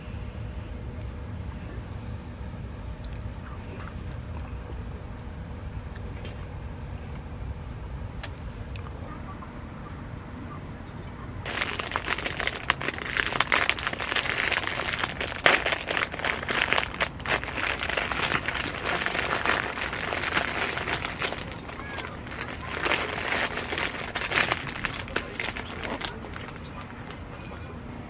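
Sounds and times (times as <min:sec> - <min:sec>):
plastic wrapper crinkling and tearing: 0:11.5 - 0:27.2.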